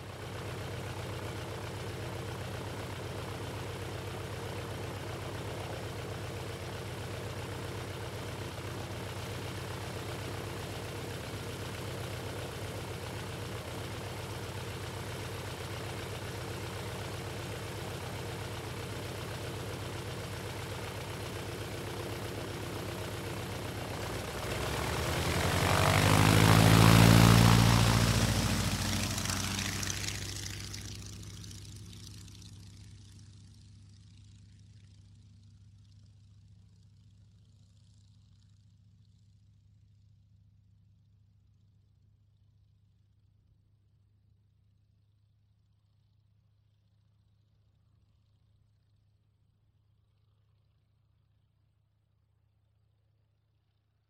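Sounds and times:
propeller airplane engine: 0.0 - 40.2.

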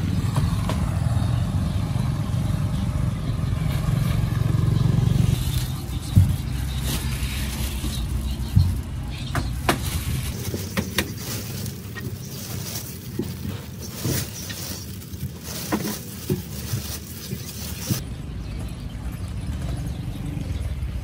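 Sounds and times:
road traffic rumble: 0.0 - 21.0
plastic glove crackling: 5.3 - 18.0
fruit knocking: 5.5 - 18.0.

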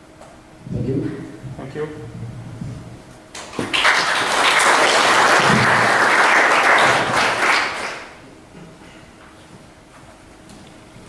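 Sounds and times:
audience applauding: 3.4 - 8.2.

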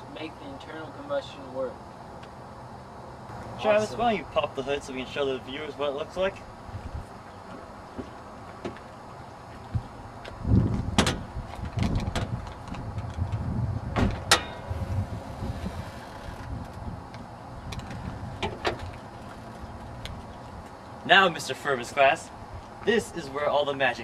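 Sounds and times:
low handling rumble: 10.5 - 20.9.

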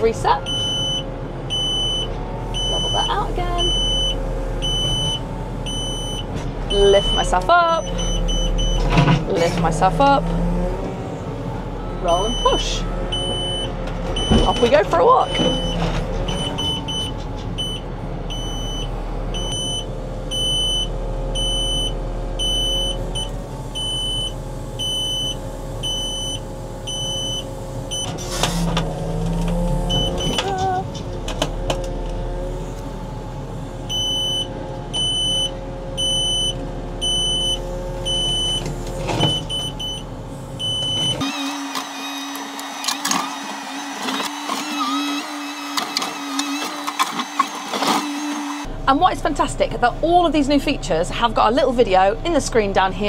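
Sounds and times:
backhoe engine running under load: 0.0 - 53.0
hydraulic whine: 31.4 - 48.9.

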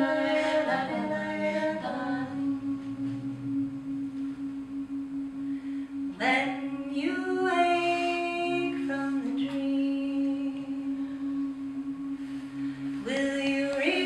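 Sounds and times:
women singing in harmony: 0.0 - 3.6, 6.2 - 11.5, 13.0 - 14.0.

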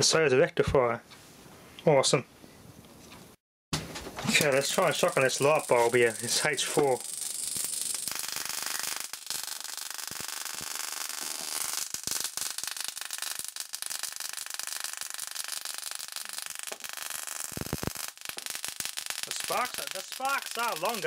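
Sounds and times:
high-voltage sparks crackling: 4.2 - 21.0.

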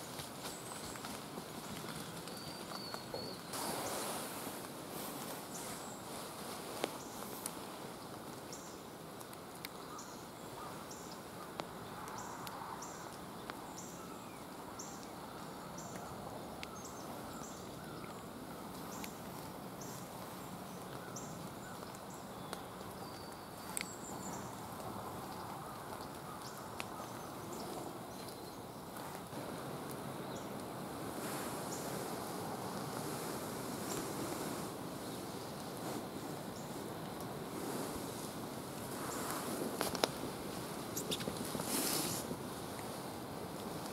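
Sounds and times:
faint sharp clicks: 9.2 - 9.8, 21.7 - 27.3.

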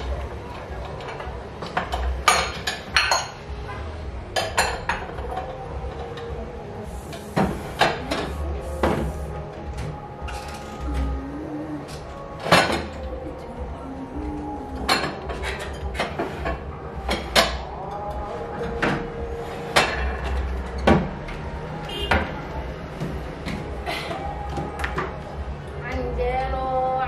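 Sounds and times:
glass bowl clinking: 2.0 - 3.4.

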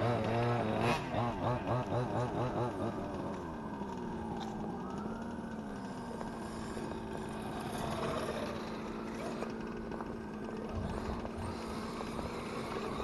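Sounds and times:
rc car motor buzz: 5.6 - 13.0.

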